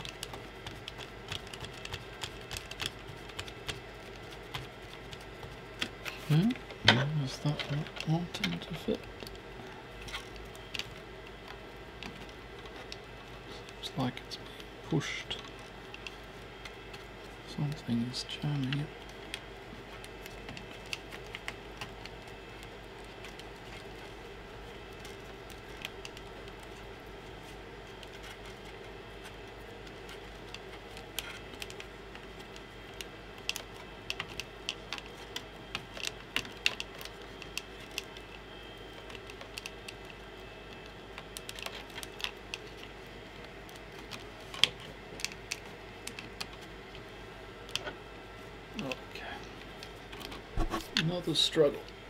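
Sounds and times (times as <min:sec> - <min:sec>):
steady low hum: 0:00.0 - 0:52.0.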